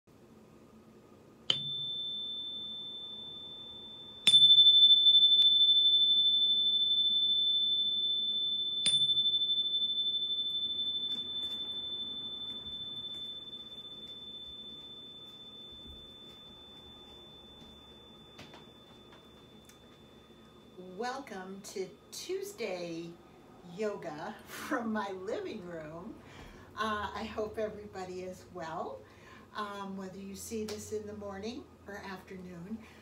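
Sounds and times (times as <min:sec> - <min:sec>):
high-pitched metal chime: 0:01.5 - 0:22.4.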